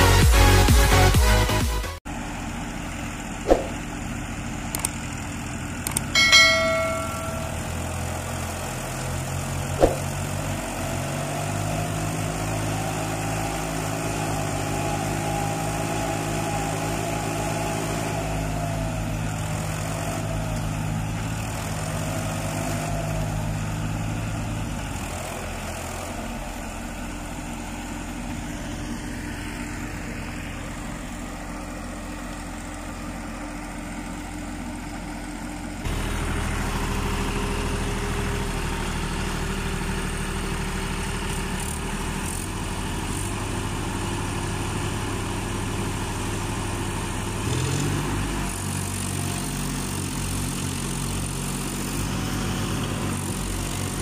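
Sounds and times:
tractor diesel engines working hard: 0:00.0 - 0:54.0
short bell-like ring: 0:06.2 - 0:07.9.

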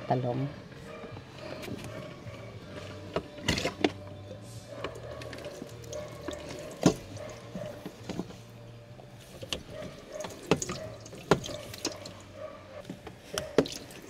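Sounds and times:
kitchen items tapping and clunking: 0:04.7 - 0:08.5, 0:09.4 - 0:12.1.

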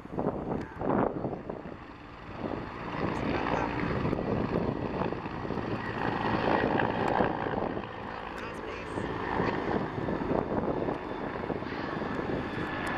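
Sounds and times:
helicopter rotor drone: 0:00.0 - 0:12.9.

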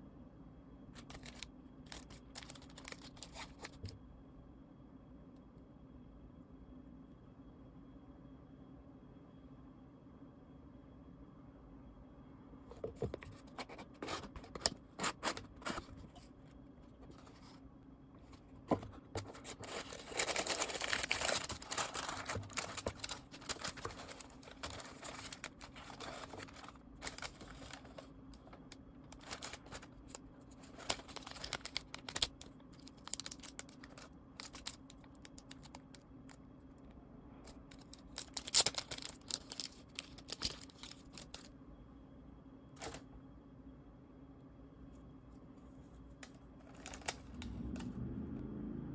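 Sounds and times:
packaging crinkling and tearing: 0:01.0 - 0:03.9, 0:18.7 - 0:36.0, 0:37.5 - 0:41.5, 0:46.6 - 0:47.6.

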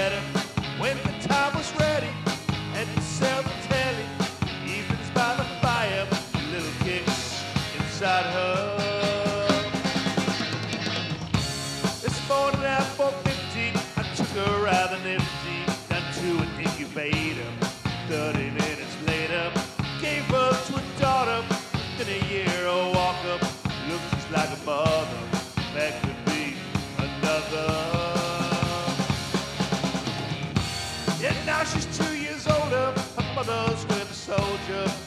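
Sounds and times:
pitch-bending lead melody: 0:00.0 - 0:24.4, 0:25.1 - 0:35.0
drum kit beat: 0:00.0 - 0:35.0
rock band music: 0:00.0 - 0:35.0.

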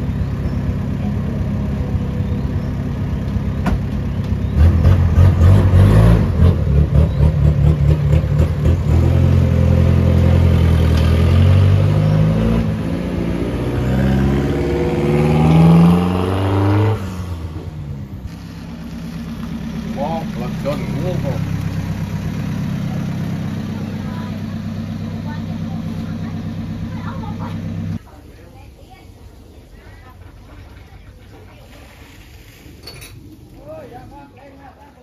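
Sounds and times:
pickup truck engine revving: 0:04.5 - 0:28.0.

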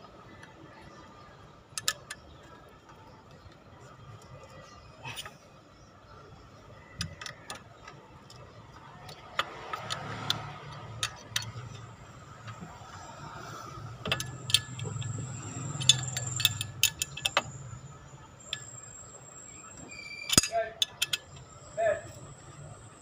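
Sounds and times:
wrench and bolts clinking: 0:07.0 - 0:22.9.

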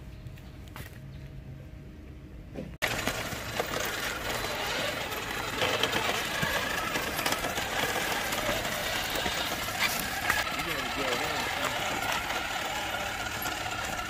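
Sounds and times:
chassis rattling and clicking: 0:02.8 - 0:14.0
electric motor and gears whirring: 0:02.8 - 0:14.0.

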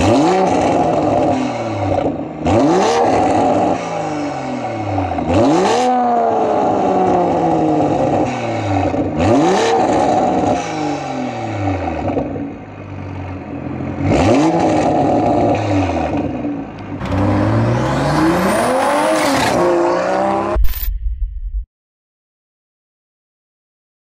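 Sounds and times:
car accelerating away: 0:14.0 - 0:20.6
car exhaust revving: 0:14.0 - 0:20.6.

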